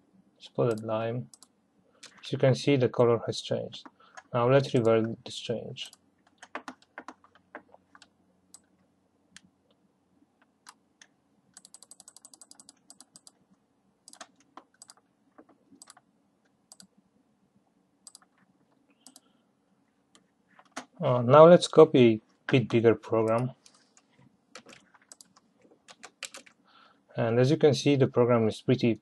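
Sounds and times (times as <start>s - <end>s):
mouse and keyboard clicking: 10.7s - 13.4s, 15.8s - 16.0s, 18.1s - 18.3s, 19.0s - 19.3s, 24.6s - 26.6s.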